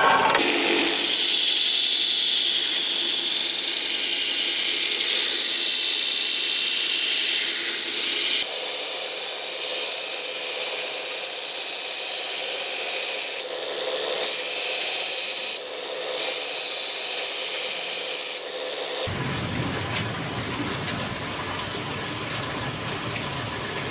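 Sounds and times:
power tool grinding: 0:00.0 - 0:19.1.

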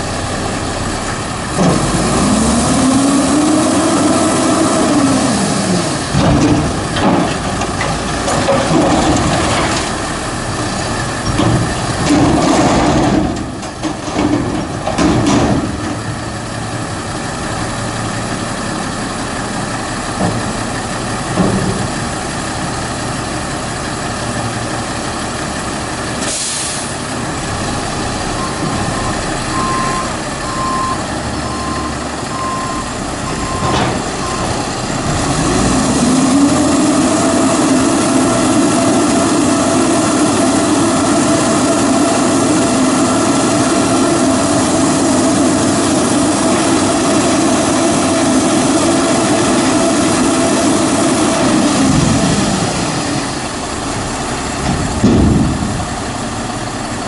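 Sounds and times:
truck diesel engine running: 0:00.0 - 0:57.0
air brakes hiss: 0:26.2 - 0:27.0
reversing beeps: 0:28.4 - 0:34.5.

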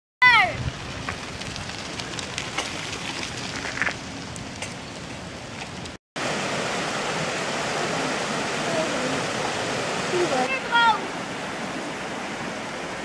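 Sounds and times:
bike tyres crunching on gravel: 0:00.3 - 0:06.0
fast-flowing stream rushing: 0:06.2 - 0:13.0.

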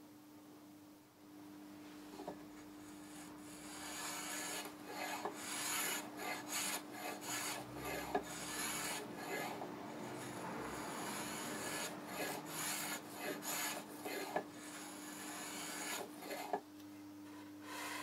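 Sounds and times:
sandpaper rubbing on wood: 0:03.8 - 0:16.5.

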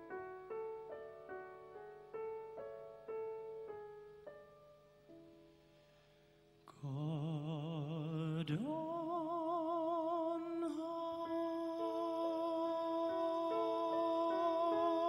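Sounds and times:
piano chords: 0:00.0 - 0:05.7, 0:06.9 - 0:15.0
man singing: 0:06.7 - 0:15.0.

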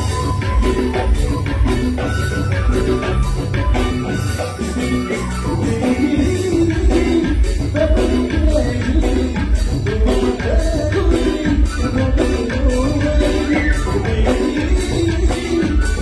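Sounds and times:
live band music: 0:00.0 - 0:16.0
man singing into microphone: 0:05.4 - 0:16.0.

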